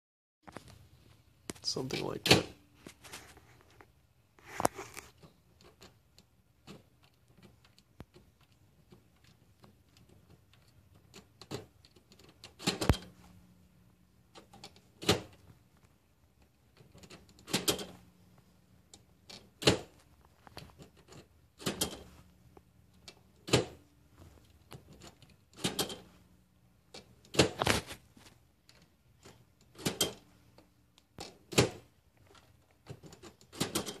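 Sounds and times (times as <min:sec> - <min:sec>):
printer mechanical clack: 0:33.0 - 0:34.0.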